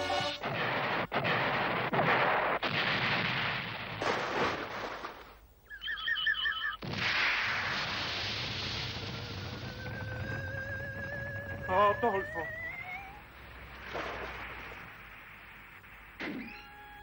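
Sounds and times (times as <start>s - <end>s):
cartoon explosion rumbling: 0.4s - 5.0s, 6.8s - 16.6s
short warbling beep: 5.7s - 6.8s.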